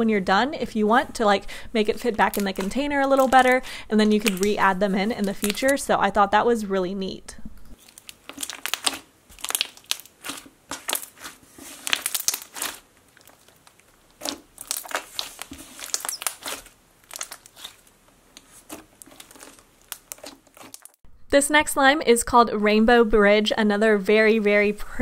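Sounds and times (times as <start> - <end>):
slime squishing with crunchy clicks: 2.0 - 5.9, 7.7 - 21.0.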